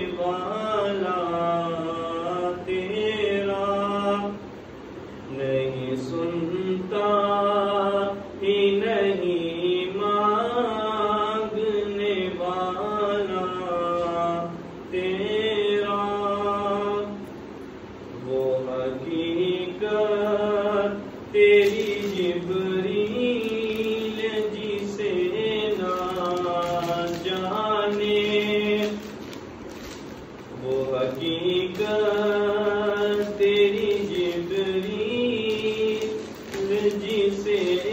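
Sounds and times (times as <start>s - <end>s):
man chanting: 0.0s - 4.4s, 5.3s - 17.2s, 18.2s - 37.9s.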